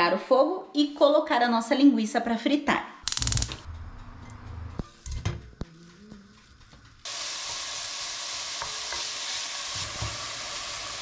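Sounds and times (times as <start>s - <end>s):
sausage meat sizzling in a pan: 6.0s - 11.0s.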